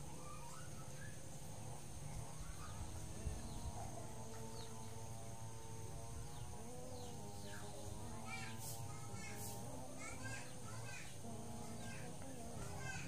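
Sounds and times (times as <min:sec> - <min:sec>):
bird chirps: 0:00.0 - 0:01.4, 0:02.2 - 0:05.0
high insect drone: 0:00.0 - 0:13.0
low hum: 0:00.0 - 0:13.0.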